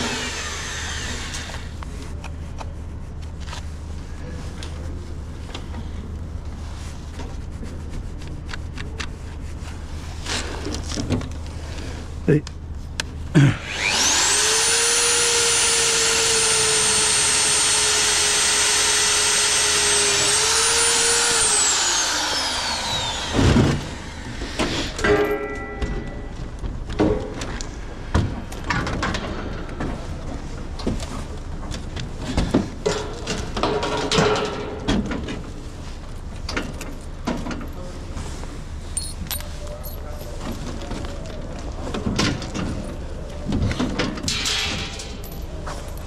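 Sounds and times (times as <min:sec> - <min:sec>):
power drill running: 0:00.0 - 0:01.8, 0:13.6 - 0:25.0
tools and metal parts clattering: 0:24.9 - 0:27.6, 0:31.8 - 0:35.6, 0:38.9 - 0:46.0.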